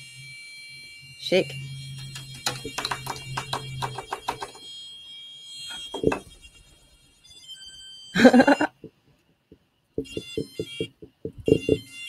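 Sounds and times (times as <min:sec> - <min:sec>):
electronic speaker tones: 0:05.6 - 0:06.6, 0:10.0 - 0:12.0.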